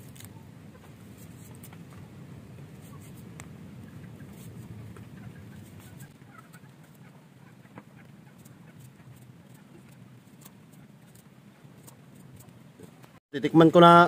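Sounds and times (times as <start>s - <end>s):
steady low rumble: 0.0s - 10.3s.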